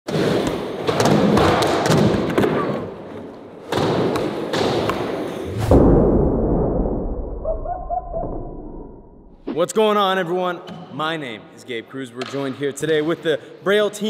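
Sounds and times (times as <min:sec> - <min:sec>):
deep boom: 0:05.5 - 0:09.5.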